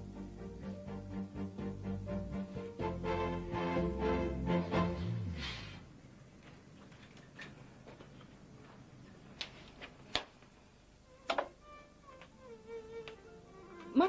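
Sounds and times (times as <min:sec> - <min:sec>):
music: 0:00.0 - 0:05.8, 0:11.0 - 0:14.0.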